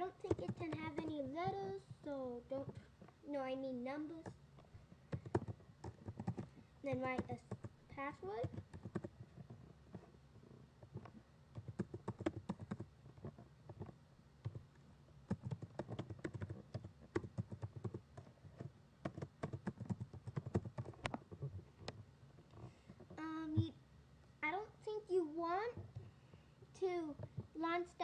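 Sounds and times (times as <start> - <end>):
computer keyboard key clicks: 5.1 - 6.5, 15.3 - 18.0, 19.0 - 21.2.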